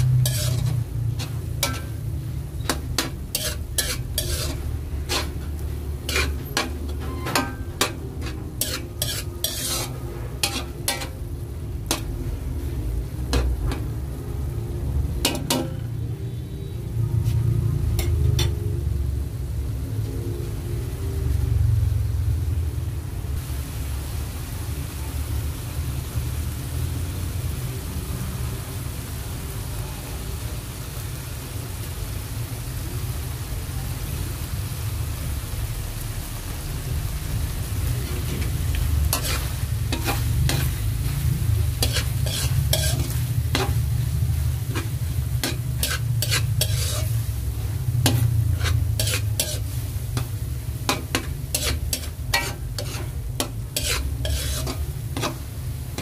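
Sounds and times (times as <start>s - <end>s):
spatula scraping pan: 0.0s - 11.2s, 11.8s - 12.7s, 38.0s - 56.0s
meat sizzling in metal pan: 0.0s - 20.0s, 23.3s - 56.0s.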